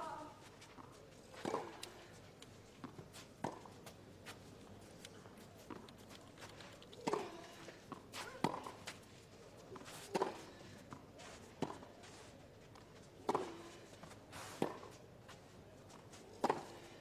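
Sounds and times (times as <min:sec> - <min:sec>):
racket hitting tennis ball: 0:07.0 - 0:08.9, 0:16.4 - 0:16.8.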